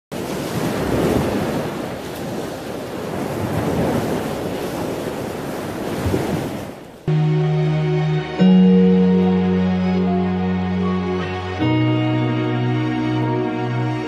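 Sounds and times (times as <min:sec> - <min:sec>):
ocean surf on a beach: 0:00.1 - 0:07.1.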